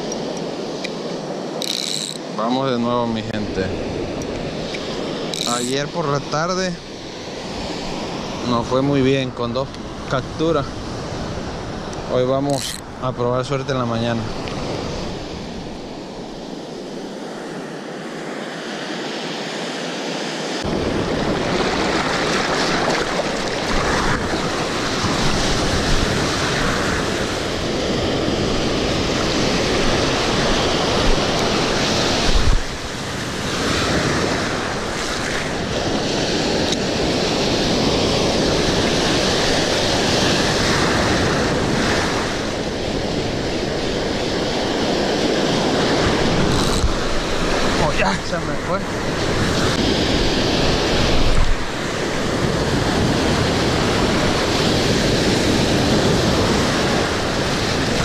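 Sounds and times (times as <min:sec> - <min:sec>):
ocean surf breaking: 0:00.0 - 0:58.0
wind buffeting microphone: 0:20.6 - 0:58.0.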